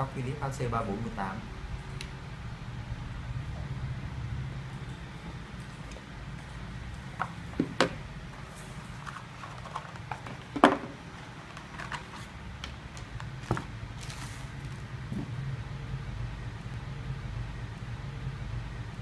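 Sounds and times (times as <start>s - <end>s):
plastic parts knocking on wooden table: 9.7s - 11.0s.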